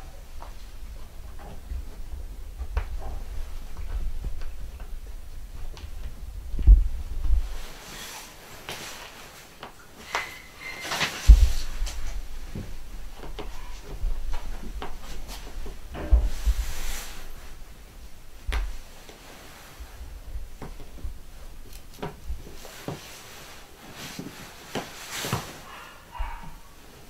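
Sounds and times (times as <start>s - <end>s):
heavy thumps: 11.2s - 18.9s.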